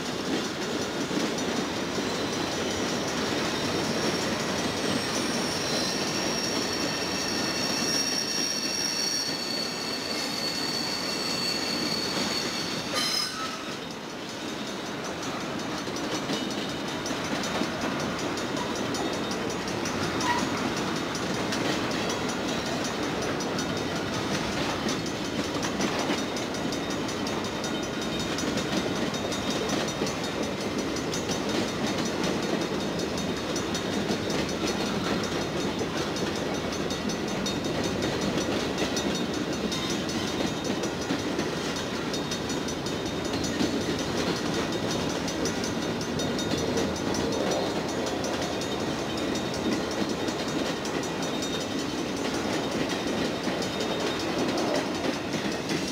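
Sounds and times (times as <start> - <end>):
high wheel squeal: 1.8 - 14.5, 18.4 - 21.0
freight cars rumbling on rails: 11.5 - 55.9.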